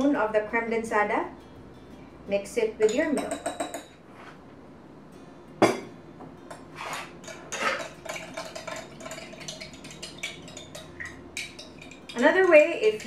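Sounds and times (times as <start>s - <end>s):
teaspoon clinking against glass jar: 2.8s - 3.9s, 6.5s - 13.0s.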